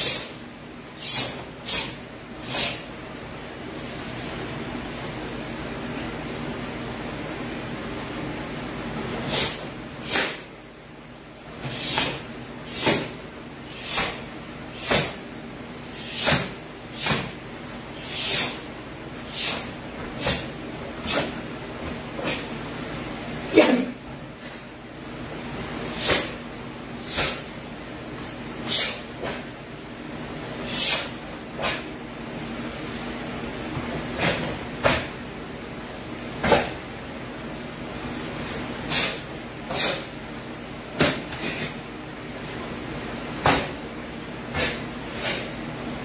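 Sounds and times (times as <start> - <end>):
sharp swishes of strikes: 9.2 - 10.5, 11.6 - 15.2, 16.0 - 17.4, 19.3 - 21.5, 26.0 - 26.4, 27.1 - 27.5, 34.0 - 35.2, 38.4 - 40.1
steady hiss: 11.6 - 21.5.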